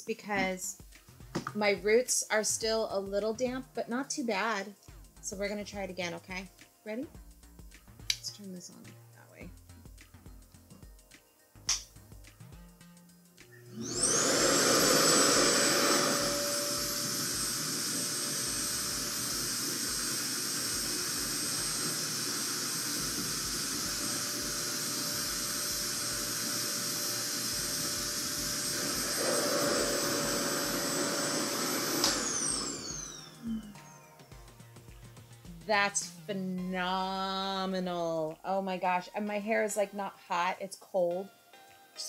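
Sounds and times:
hair dryer suction motor whining: 13.5 - 34.0
air rushing into suction wand: 13.7 - 33.9.

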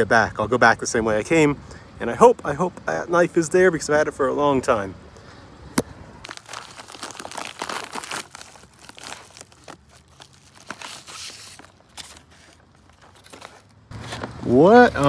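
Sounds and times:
paper envelope tearing and rustling: 6.2 - 14.6.

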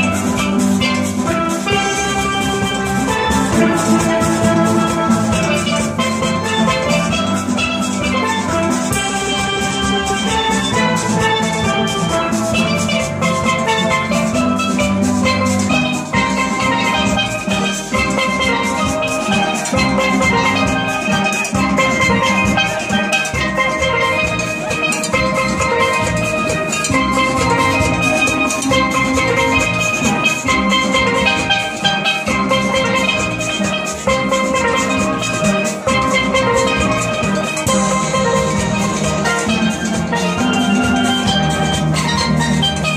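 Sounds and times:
steady drum beat: 0.0 - 42.9
steel pans ringing: 0.0 - 42.9.

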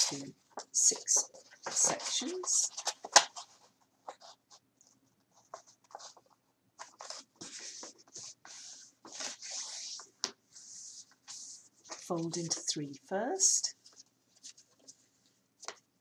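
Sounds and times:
card folding rustles: 0.0 - 12.7.

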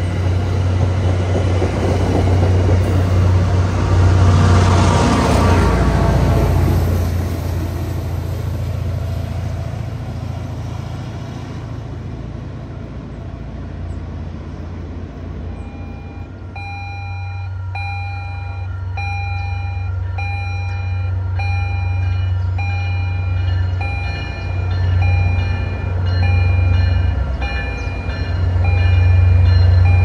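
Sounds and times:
locomotive engine rumble: 0.0 - 30.0
low diesel drone: 0.0 - 30.0
train bell ringing: 15.6 - 30.0.

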